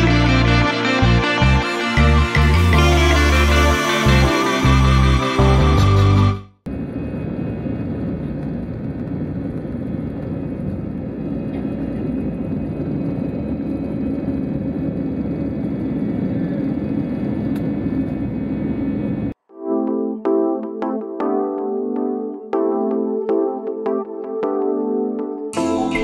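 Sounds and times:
jet engines at takeoff thrust: 6.7s - 19.4s.

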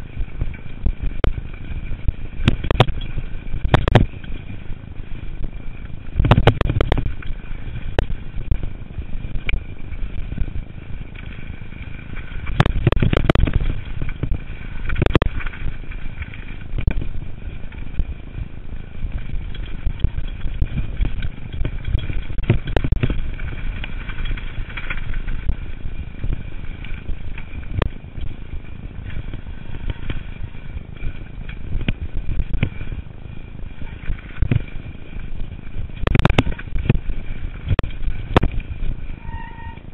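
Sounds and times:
bike rattling and clattering: 0.0s - 39.9s
bike tyres rumbling on dirt: 0.0s - 39.9s
bike knocking over bumps: 0.2s - 4.7s, 19.0s - 33.1s, 33.8s - 39.0s.

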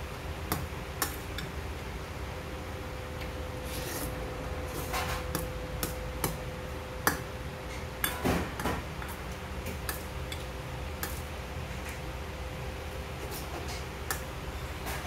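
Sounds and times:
metal spoon scraping steel bowl: 3.6s - 5.2s.

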